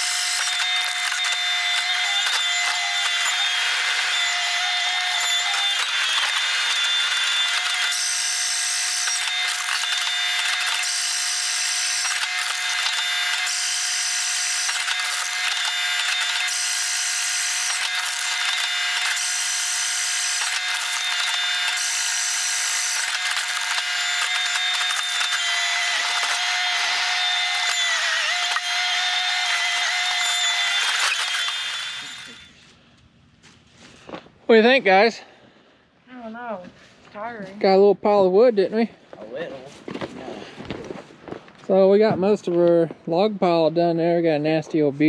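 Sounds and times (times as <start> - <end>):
high machine whirring: 0.0 - 32.6
steady machine whine: 0.0 - 32.6.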